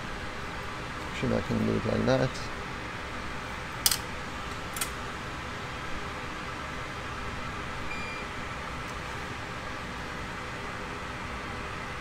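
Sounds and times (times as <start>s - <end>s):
short faint beep: 7.9s - 8.2s.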